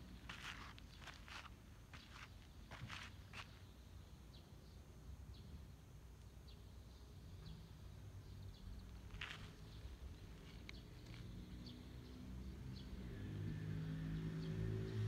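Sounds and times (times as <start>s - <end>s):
footsteps on gravel: 0.3s - 3.5s, 9.2s - 9.6s.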